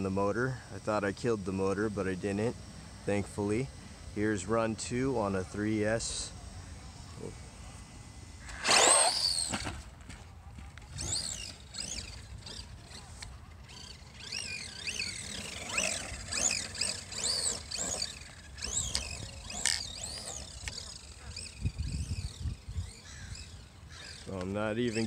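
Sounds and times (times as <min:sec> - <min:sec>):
rc truck motor whining: 0:00.0 - 0:10.0, 0:10.6 - 0:25.0.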